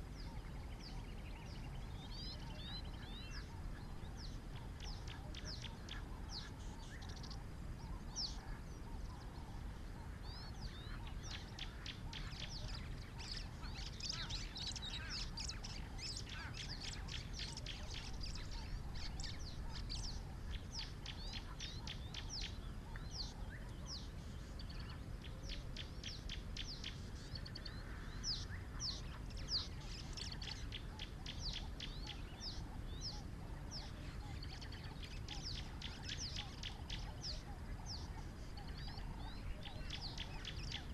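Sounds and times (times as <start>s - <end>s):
birds chirping and whistling: 0.0s - 40.9s
low background rumble: 0.0s - 40.9s.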